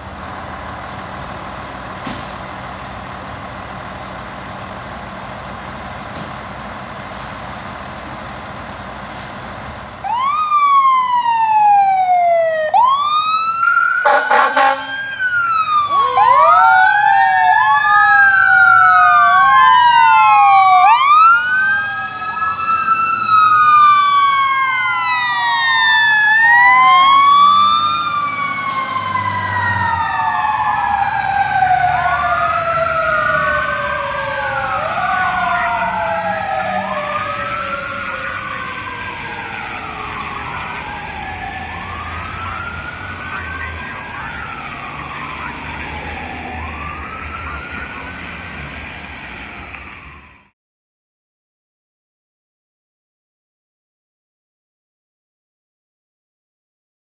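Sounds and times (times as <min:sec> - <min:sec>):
fire truck engines running: 0:00.0 - 0:50.5
electronic sirens wailing: 0:10.0 - 0:50.5
short horn blast: 0:14.1 - 0:15.0.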